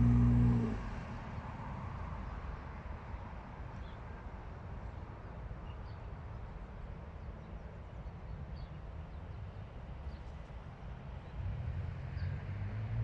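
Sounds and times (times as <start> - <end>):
low outdoor rumble: 0.0 - 1.8.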